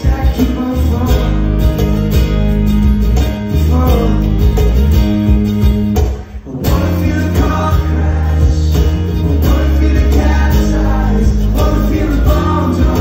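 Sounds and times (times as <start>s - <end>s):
man singing: 0.0s - 1.6s, 3.5s - 4.7s, 6.3s - 13.0s
electric bass: 0.0s - 13.0s
strummed acoustic guitar: 0.0s - 13.0s.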